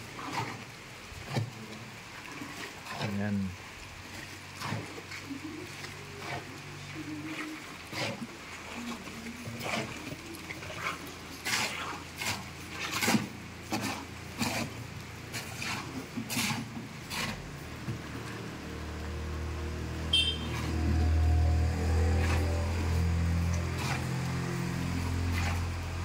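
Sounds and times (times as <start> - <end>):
vehicle engine humming: 17.0 - 26.0
short high chirp: 20.2 - 20.6.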